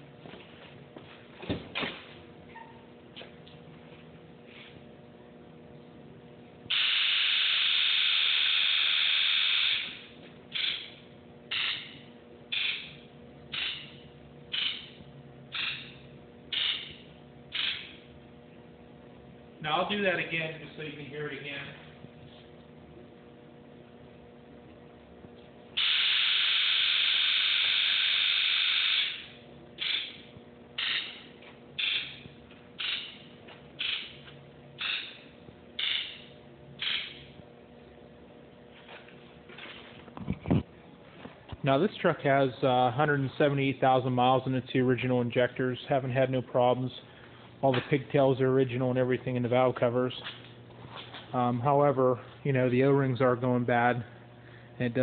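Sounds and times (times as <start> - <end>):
diesel injectors buzzing: 6.6 - 39.6.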